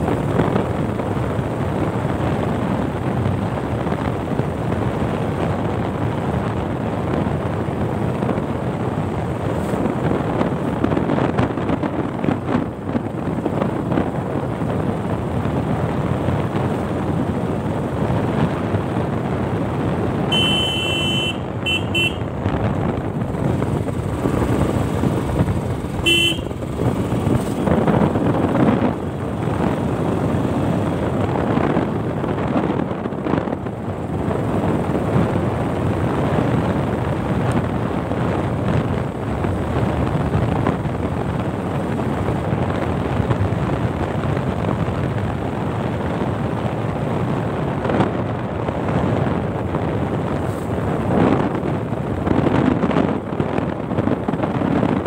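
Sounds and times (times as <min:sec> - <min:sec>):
motorcycle engine running: 0:00.0 - 0:47.3
road noise: 0:00.0 - 0:55.0
horn beeping: 0:20.3 - 0:22.3, 0:26.0 - 0:26.6.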